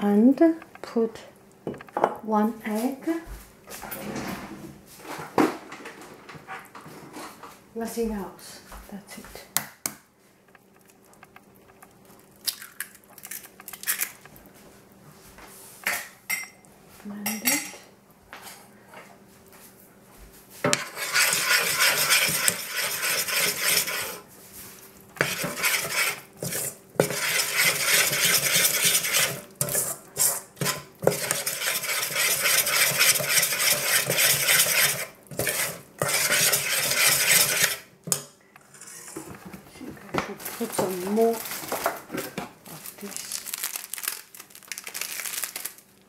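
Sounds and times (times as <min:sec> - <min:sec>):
fork scraping metal saucepan: 0:20.7 - 0:24.3, 0:25.2 - 0:37.9, 0:38.6 - 0:39.3.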